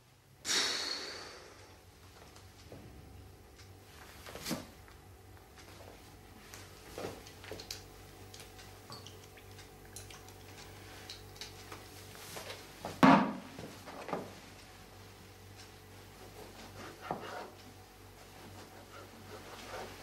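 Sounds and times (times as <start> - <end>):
utensils clicking and tapping: 6.5 - 12.6.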